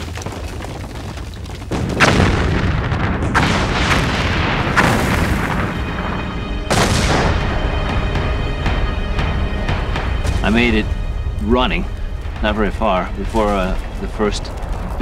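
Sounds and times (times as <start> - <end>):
rushing ash and rock: 0.0 - 7.5, 10.2 - 15.0
volcanic rumble: 0.0 - 8.8, 10.3 - 15.0
deep eruption booms: 1.7 - 11.4.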